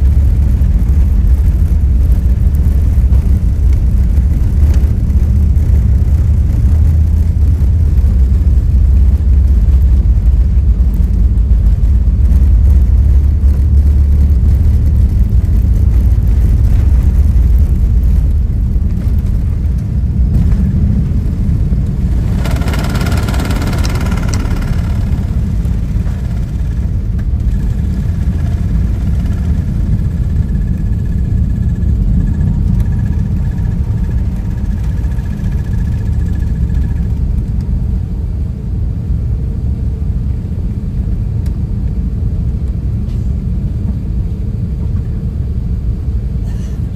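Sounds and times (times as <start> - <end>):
airplane engine rumble in cabin: 0.0 - 46.9
high-pitched mechanical sound: 21.5 - 37.5.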